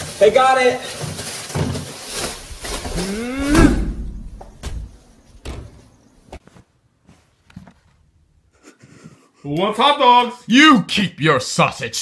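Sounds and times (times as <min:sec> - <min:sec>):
plastic trash bag rustling: 0:00.0 - 0:04.6
person yelling: 0:02.9 - 0:04.2.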